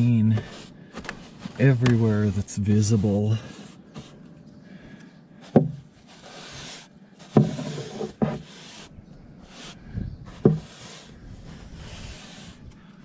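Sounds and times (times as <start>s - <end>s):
brush scrubbing wood boards: 0.0s - 4.2s, 5.4s - 12.7s
sharp knocks: 5.5s - 5.8s.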